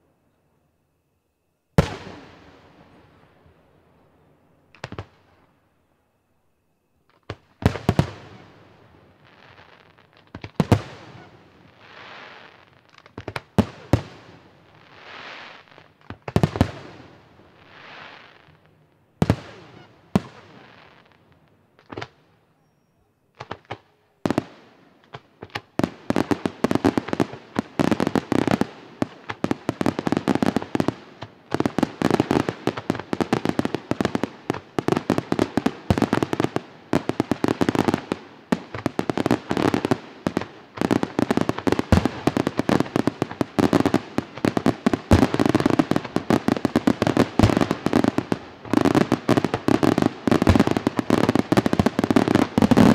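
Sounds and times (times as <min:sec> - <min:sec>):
rapid firework bangs and crackling: 0:23.4 - 0:52.9.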